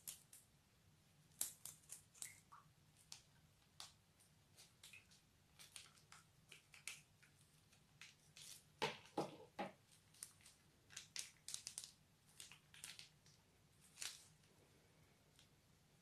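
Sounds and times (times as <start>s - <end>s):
plastic piping bag crinkling: 4.7s - 9.2s, 9.8s - 14.5s.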